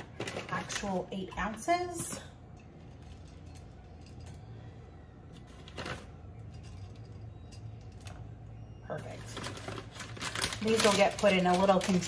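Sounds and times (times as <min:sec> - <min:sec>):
low steady hum: 0:00.0 - 0:12.0.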